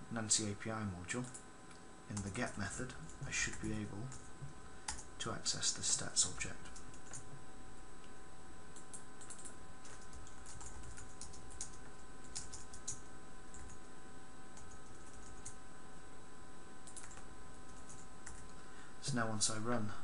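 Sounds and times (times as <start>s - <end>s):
faint steady hum: 0.0s - 20.0s
computer keyboard typing: 1.2s - 1.4s, 4.9s - 5.1s, 6.6s - 7.3s, 8.8s - 13.9s, 14.6s - 15.6s, 16.8s - 18.6s.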